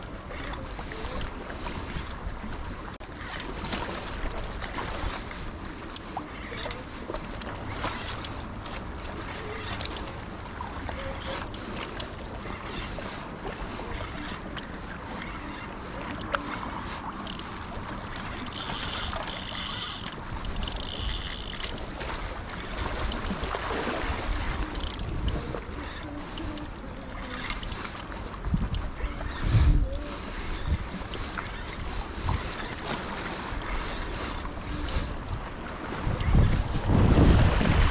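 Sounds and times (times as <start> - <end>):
fishing reel buzzing: 7.4 - 8.4, 9.2 - 10.2, 10.9 - 21.9, 22.6 - 35.1, 36.0 - 37.6
light clicks: 7.4 - 8.4
wind on microphone: 22.8 - 27.7, 28.3 - 37.9.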